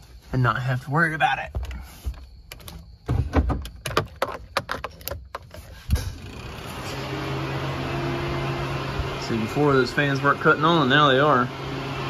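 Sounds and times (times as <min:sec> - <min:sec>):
car door clicks and knocks: 0:02.5 - 0:05.5
car engine running: 0:05.3 - 0:12.0
radiator cooling fans whirring: 0:06.0 - 0:12.0.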